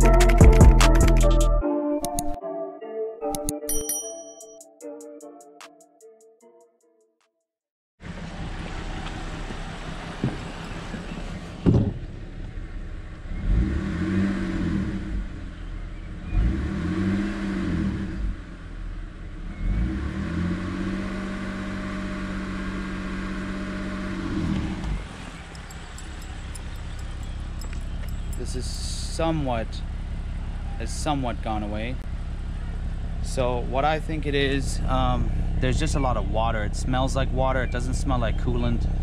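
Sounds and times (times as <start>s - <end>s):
car engine idling and revving: 8.0s - 39.0s.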